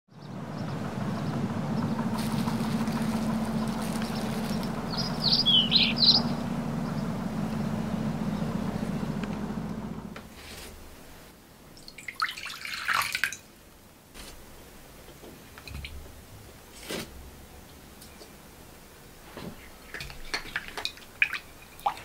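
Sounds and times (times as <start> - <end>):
water dripping: 11.8 - 13.5, 19.8 - 22.0.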